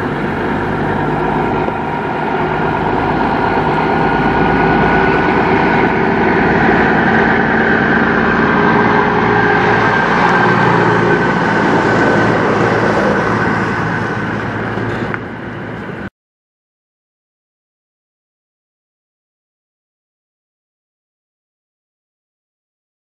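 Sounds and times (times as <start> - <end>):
truck diesel engine passing: 0.0 - 16.1.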